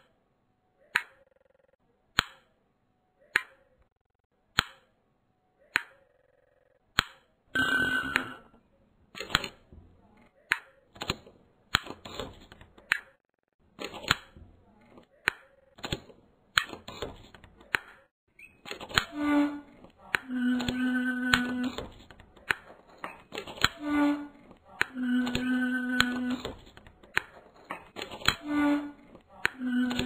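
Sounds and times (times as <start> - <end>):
rattling scrape with ringing note: 7.6 - 8.5, 20.3 - 21.8, 24.9 - 26.4, 29.6 - 30.0.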